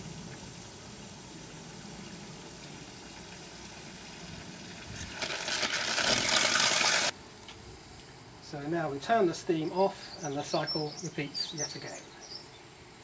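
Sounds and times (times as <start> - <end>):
spluttering steam hiss: 0.0 - 8.0.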